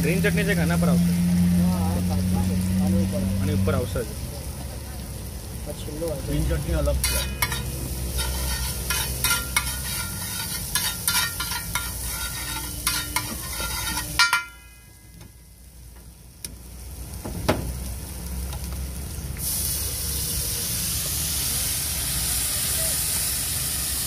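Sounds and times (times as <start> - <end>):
food sizzling: 0.0 - 24.0
metal spatula scraping on iron pan: 6.9 - 14.9.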